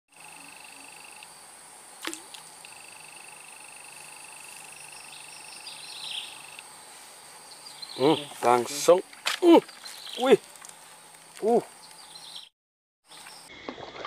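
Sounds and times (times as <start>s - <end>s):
fast pulsed insect trill: 0.1s - 12.5s
insects trilling high-pitched: 0.1s - 12.5s
short chirping calls: 2.2s - 6.6s, 7.4s - 8.6s, 9.6s - 10.4s, 11.4s - 12.5s.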